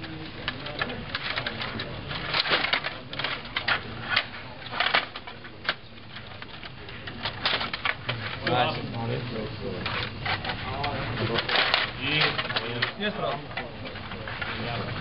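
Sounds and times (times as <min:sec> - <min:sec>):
table hockey rods clicking: 0:09.8 - 0:14.6.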